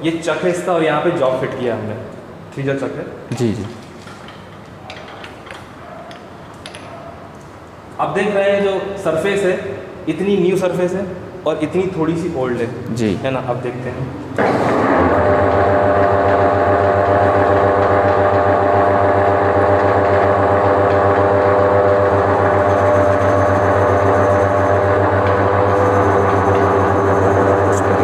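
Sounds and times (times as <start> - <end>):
gear whine: 14.7 - 28.0
lathe motor humming: 14.8 - 28.0.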